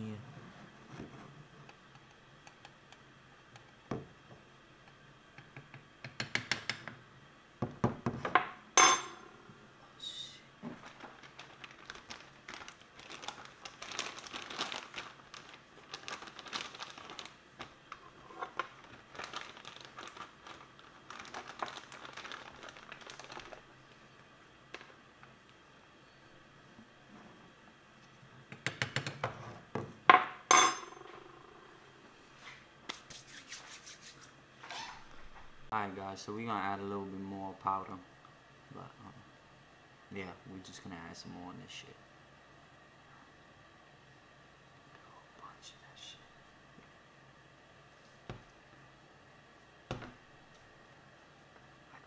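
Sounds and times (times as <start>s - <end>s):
small scrapes and rustles: 32.2s - 35.1s.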